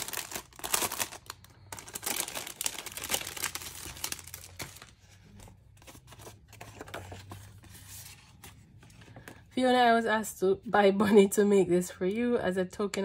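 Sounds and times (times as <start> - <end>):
plastic packaging crinkling: 0.0 - 7.4
paper rustling: 0.0 - 9.4.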